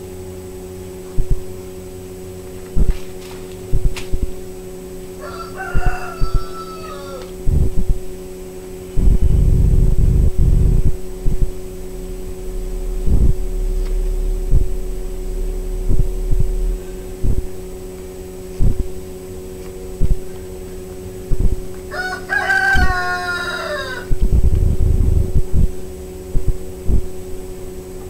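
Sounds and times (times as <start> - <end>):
steady hum: 0.0 - 28.0
dull low thumps: 1.2 - 1.5, 3.7 - 4.5, 7.3 - 8.2, 8.9 - 20.3, 21.2 - 21.8, 24.1 - 27.4
low rumble: 7.3 - 8.1, 8.8 - 21.9, 24.0 - 27.9.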